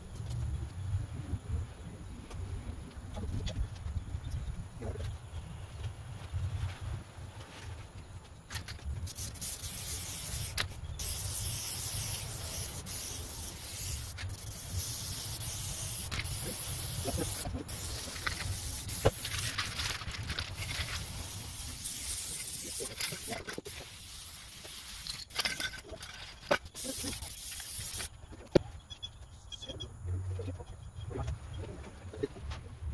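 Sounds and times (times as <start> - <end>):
aerosol can hissing: 9.0 - 25.5, 26.7 - 28.1.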